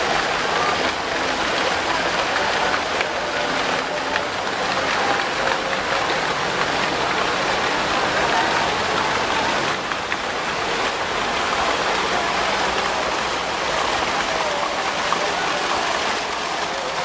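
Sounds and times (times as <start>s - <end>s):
fountain water splashing into basin: 0.0s - 17.0s.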